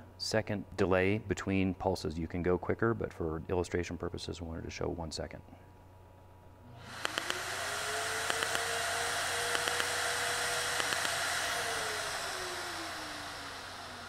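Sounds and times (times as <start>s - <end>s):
smoke evacuator whine: 6.8s - 14.0s
laser handpiece quick pops: 10.7s - 11.3s.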